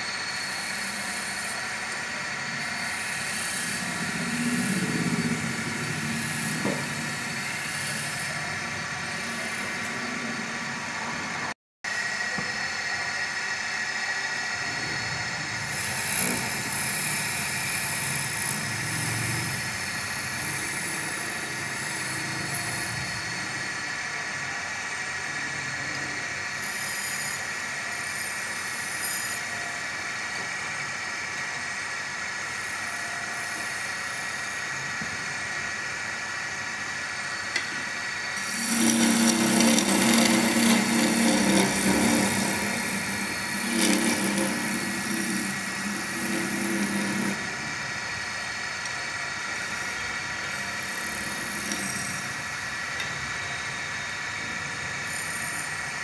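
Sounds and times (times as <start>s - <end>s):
wood lathe running: 0.0s - 24.2s, 35.3s - 53.4s, 54.3s - 56.0s
chisel cutting spinning wood: 0.0s - 56.0s.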